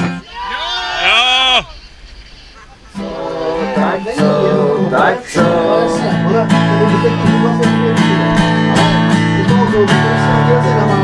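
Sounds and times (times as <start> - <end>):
song with strummed acoustic guitar: 2.9 - 11.0.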